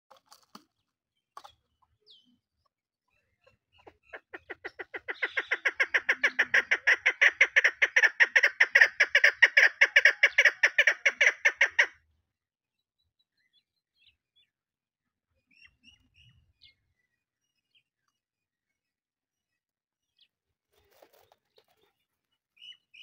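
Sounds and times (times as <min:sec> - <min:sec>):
partridge clucking calls: 0:03.4 - 0:12.0.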